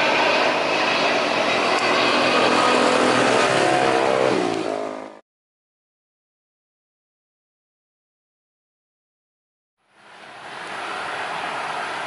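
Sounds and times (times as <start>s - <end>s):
jet engines passing overhead: 0.0s - 5.2s, 9.8s - 12.0s.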